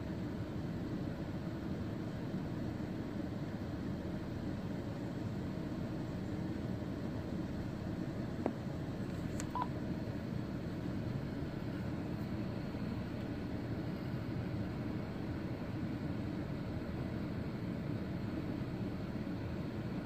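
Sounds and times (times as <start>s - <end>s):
click: 8.4s - 9.6s.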